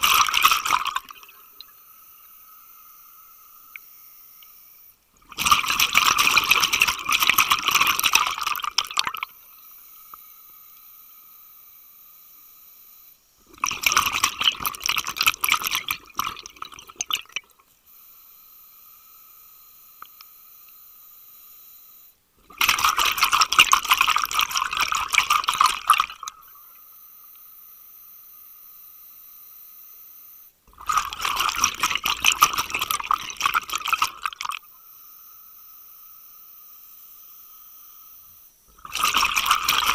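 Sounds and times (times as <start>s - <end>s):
faint steady hum: 0.0s - 39.9s
underwater breathing bubbles: 30.7s - 34.6s, 38.8s - 39.9s.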